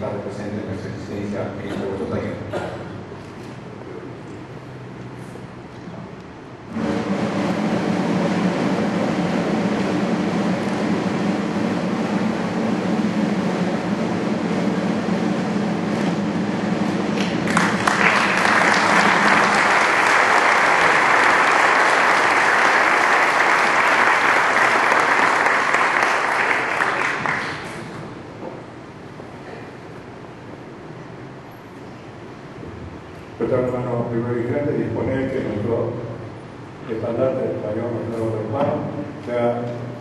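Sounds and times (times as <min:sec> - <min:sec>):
audience applause: 0:17.2 - 0:28.0.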